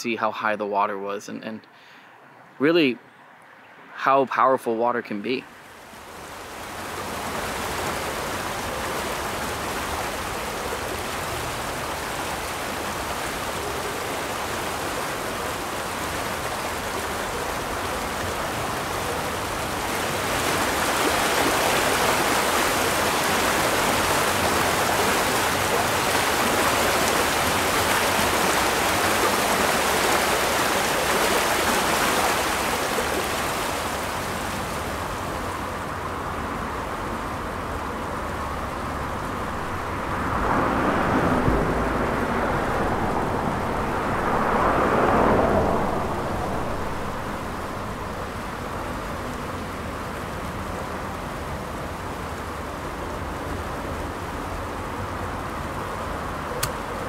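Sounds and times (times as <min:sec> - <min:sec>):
river rushing over a dam: 0:05.0 - 0:57.0.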